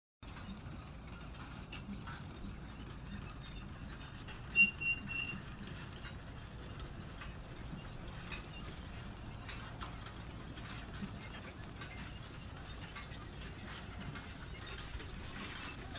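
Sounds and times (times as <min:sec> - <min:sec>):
manure spreader rumbling: 0:00.4 - 0:15.9
short high squeaks: 0:04.4 - 0:05.5.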